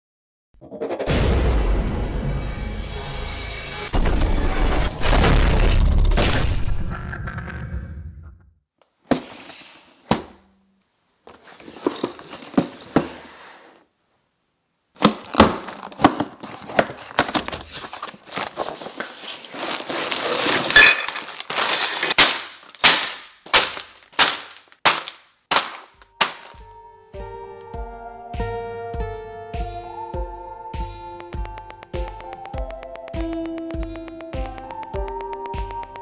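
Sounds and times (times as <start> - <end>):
cardboard tearing: 15.0 - 26.5
plastic crinkling: 15.0 - 26.6
plastic pieces tapping and knocking: 20.8 - 26.6, 31.6 - 36.0.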